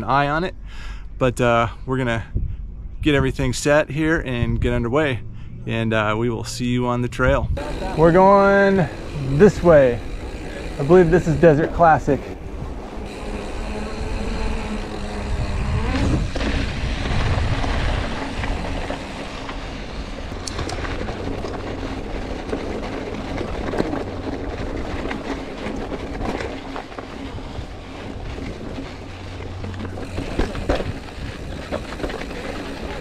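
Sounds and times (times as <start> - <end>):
wind rumbling on microphone: 2.1 - 33.0
bike clicking and rattling: 7.6 - 33.0
tyres crunching over gravel: 7.6 - 33.0.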